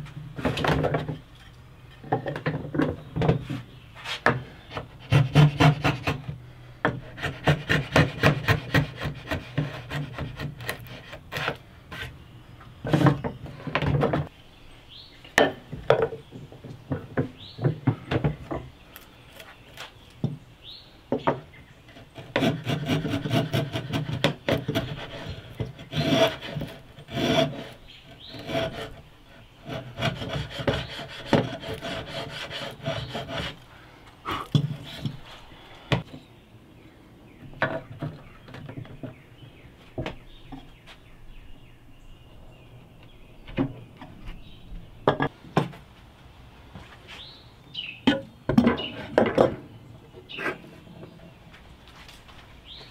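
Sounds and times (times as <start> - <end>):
plane scraping wood: 7.0 - 12.1, 22.0 - 29.0, 29.6 - 33.6.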